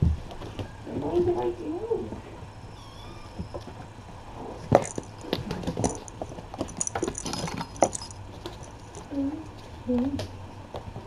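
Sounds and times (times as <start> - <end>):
kittens playing with toys: 2.7 - 11.0.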